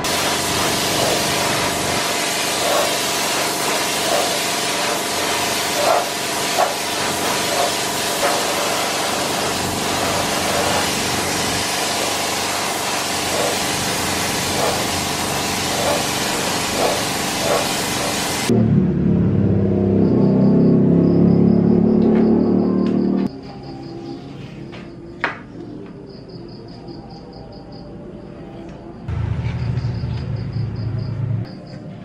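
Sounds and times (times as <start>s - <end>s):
spray gun hissing: 0.0s - 18.5s
machinery humming: 0.0s - 19.4s, 27.9s - 32.0s.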